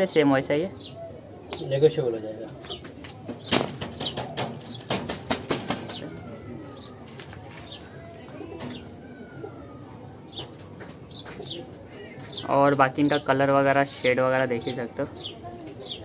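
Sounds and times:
pigeon wings flapping: 3.4s - 6.3s.

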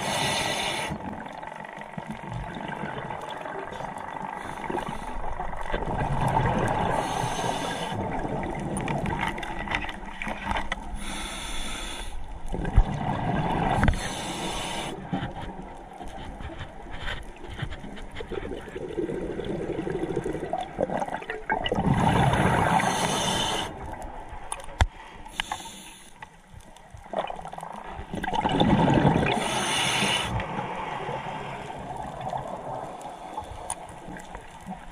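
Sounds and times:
water noise: 0.0s - 34.9s
exhaled bubbles rushing: 2.1s - 4.8s, 5.5s - 7.0s, 12.5s - 13.9s, 18.4s - 23.0s, 27.1s - 29.6s.

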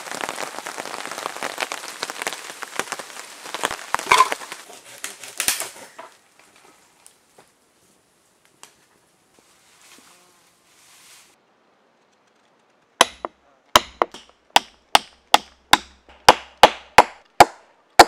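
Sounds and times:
heavy rain pattering on leaves: 0.0s - 7.2s
firewood sticks knocking together: 4.0s - 6.2s.

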